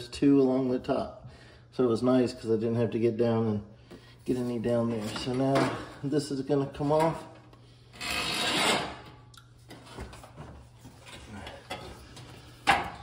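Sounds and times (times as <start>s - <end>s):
panel scraping and rubbing: 8.0s - 9.0s.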